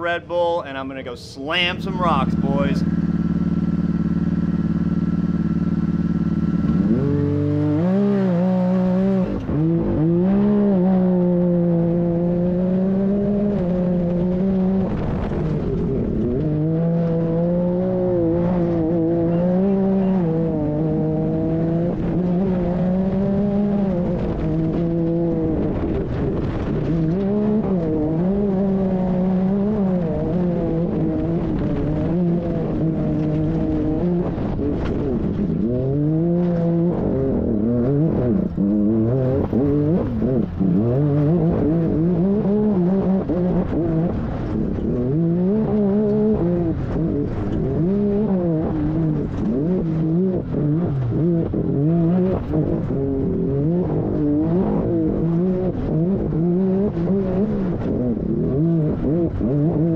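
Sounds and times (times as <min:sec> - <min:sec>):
engine idling and accelerating: 0:00.0 - 0:59.9
wind and tyre noise: 0:00.0 - 0:59.9.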